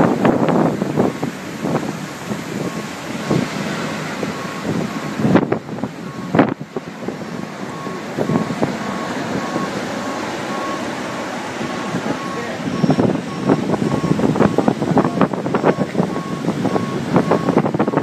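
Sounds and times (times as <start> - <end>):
surf: 0.0 - 18.0
wind buffeting microphone: 0.0 - 18.0
reversing alarm beeping: 2.5 - 6.6, 7.2 - 18.0.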